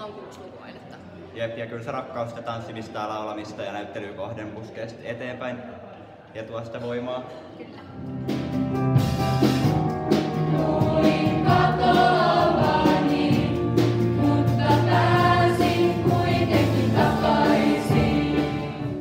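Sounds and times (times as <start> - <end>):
live band playing: 8.0 - 19.0
young voices singing together: 10.3 - 19.0.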